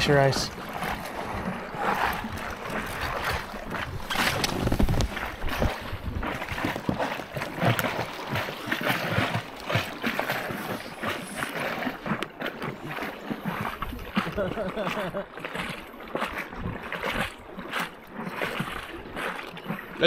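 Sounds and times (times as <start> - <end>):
wind buffeting microphone: 0.0 - 8.8
water lapping around kayak: 0.0 - 20.0.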